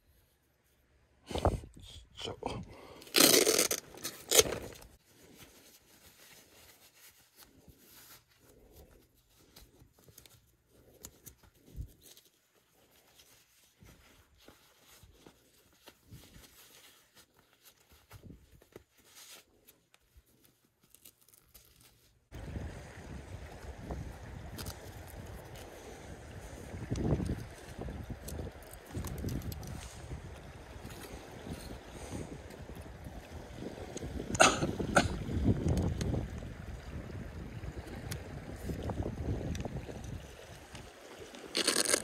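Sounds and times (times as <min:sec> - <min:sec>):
faint rustling: 0:03.9 - 0:22.3.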